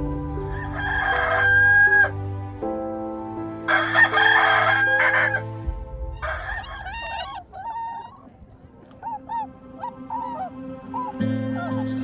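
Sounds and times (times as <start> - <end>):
rooster crowing: 0.4 - 2.2, 3.7 - 5.5, 6.2 - 8.1.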